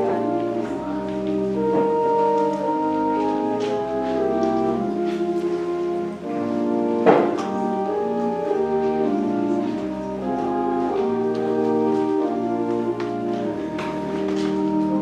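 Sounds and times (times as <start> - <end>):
church organ chords: 0.0 - 15.0
sharp knock: 7.1 - 7.5.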